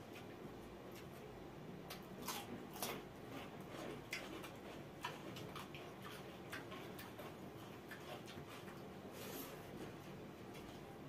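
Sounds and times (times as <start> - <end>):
wet chewing: 1.9 - 11.0.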